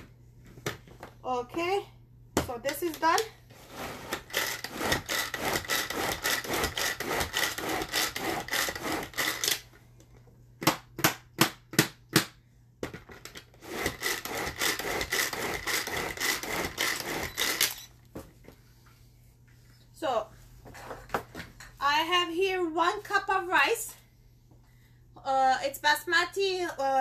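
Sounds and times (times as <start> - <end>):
pull-cord chopper whirring: 13.7 - 17.9.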